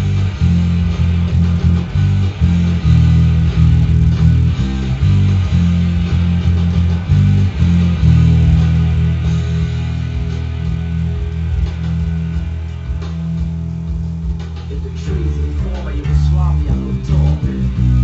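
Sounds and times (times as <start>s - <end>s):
electric bass guitar bassline: 0.0s - 18.0s
punk rock band: 0.0s - 18.0s.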